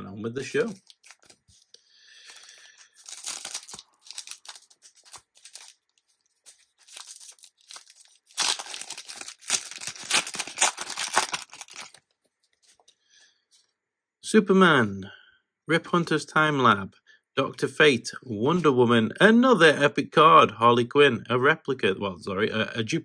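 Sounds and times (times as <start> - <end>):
foil wrapper tearing and crinkling: 0.6 - 1.5, 2.2 - 12.0.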